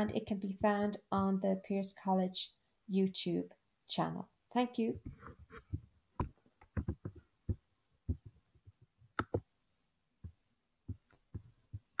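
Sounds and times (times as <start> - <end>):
computer mouse clicks: 9.2 - 9.4.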